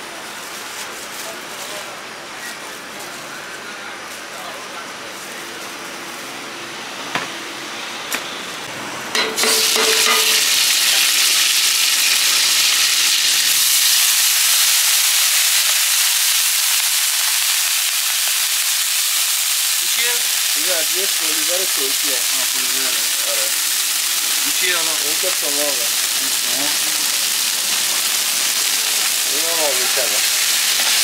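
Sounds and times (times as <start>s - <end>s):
food sizzling in a pan: 9.2s - 31.0s.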